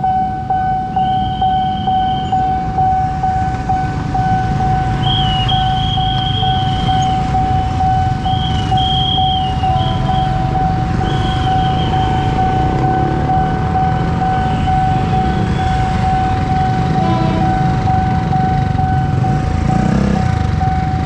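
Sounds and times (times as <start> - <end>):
level crossing warning bell: 0.0 - 21.0
motorcycle engines idling: 0.4 - 21.0
high whistling tone: 0.5 - 2.6, 4.7 - 15.9.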